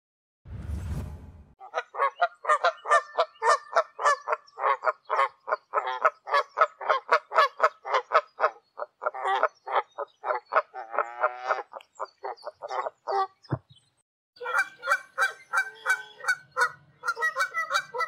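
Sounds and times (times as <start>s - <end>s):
geese honking: 14.4s - 18.0s.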